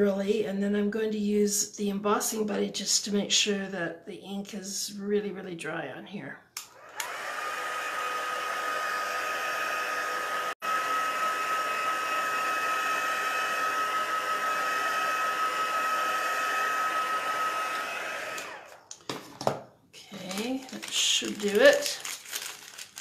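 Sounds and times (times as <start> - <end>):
heat tool blowing hot air: 6.7 - 18.8
fan motor whine: 6.8 - 18.8.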